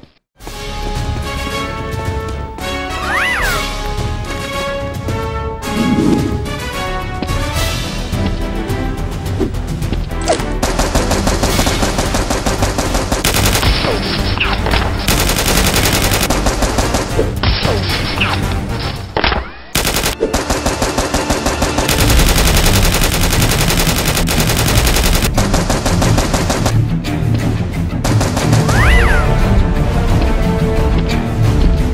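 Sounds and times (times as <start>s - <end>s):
automatic gunfire: 10.6s - 14.2s, 14.9s - 17.4s, 19.7s - 26.7s, 28.1s - 29.0s.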